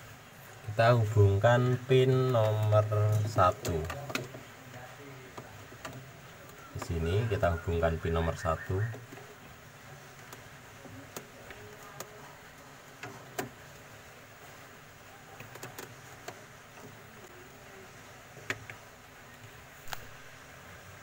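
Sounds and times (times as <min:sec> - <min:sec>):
faint clicks and taps on plastic: 0:02.2 - 0:07.0, 0:10.0 - 0:13.9, 0:15.3 - 0:17.4, 0:18.3 - 0:20.1.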